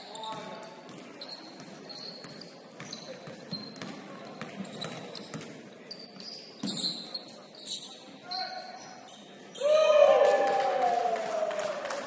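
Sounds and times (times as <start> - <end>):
sneakers squeaking: 0.0 - 9.6.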